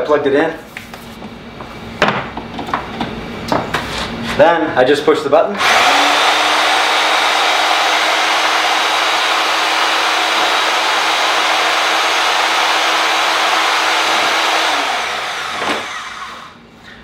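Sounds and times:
band saw switching off: 5.6s - 16.6s
band saw motor humming: 5.6s - 16.7s.

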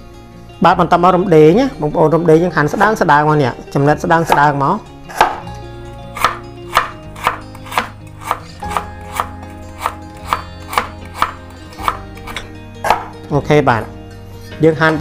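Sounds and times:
knife slicing on cutting board: 5.1s - 5.4s, 6.2s - 13.1s.

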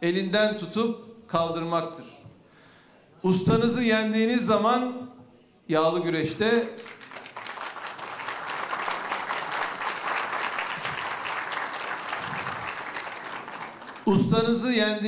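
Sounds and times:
man talking: 5.7s - 6.8s, 14.1s - 15.0s
audience applauding: 6.8s - 14.4s.

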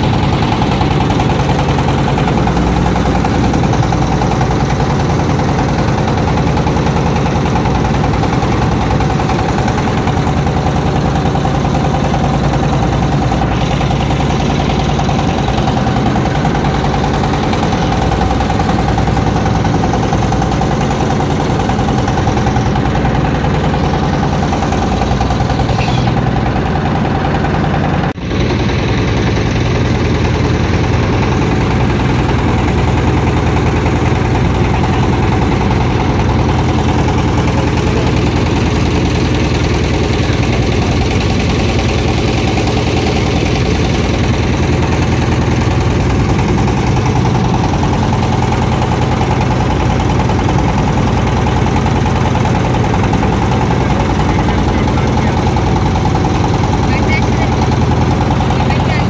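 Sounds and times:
engine running loud: 0.0s - 59.0s.

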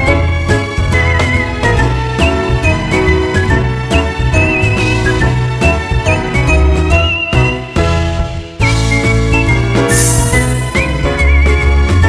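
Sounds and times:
background music tune: 0.0s - 12.0s
bright jingling shimmer: 9.9s - 10.8s.

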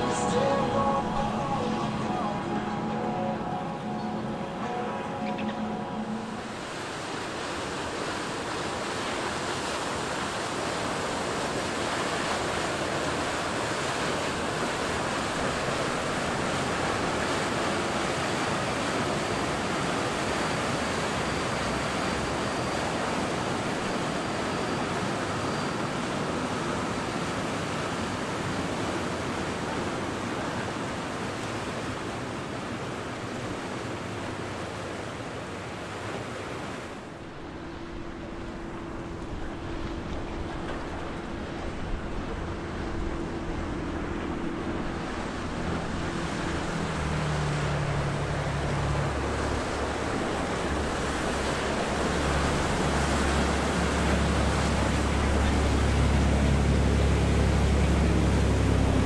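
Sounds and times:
waves and surf rushing: 0.0s - 59.0s
wind: 0.0s - 59.0s.

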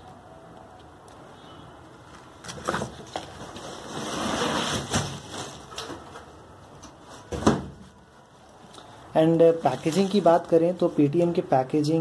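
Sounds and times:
plastic and cardboard rustling: 2.2s - 8.6s, 9.2s - 11.4s.

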